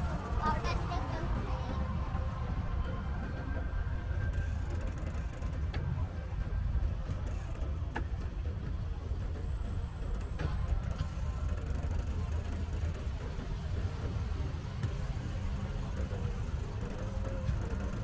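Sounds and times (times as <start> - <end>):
low rumble while cycling: 0.0 - 18.0.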